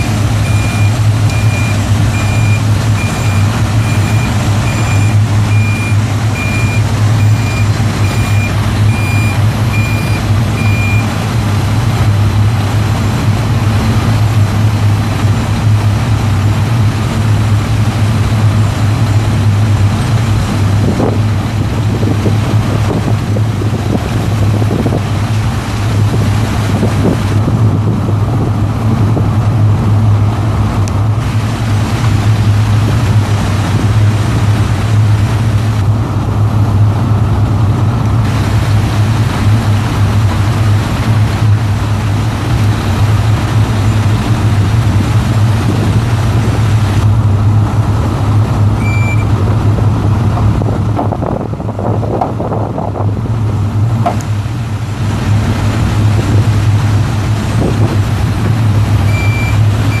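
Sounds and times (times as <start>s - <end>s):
short high beeps: 0.0s - 11.1s, 48.8s - 49.3s, 59.1s - 60.0s
diesel truck engine droning: 0.0s - 60.0s.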